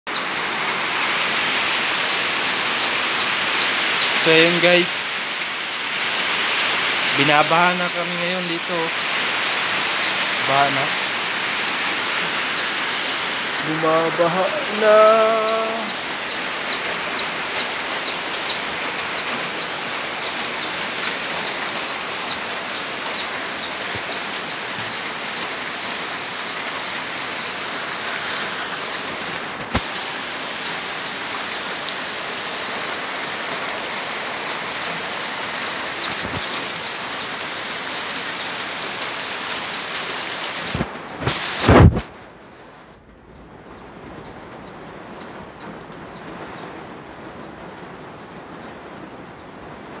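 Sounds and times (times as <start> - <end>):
heavy rain on water: 0.1 - 50.0.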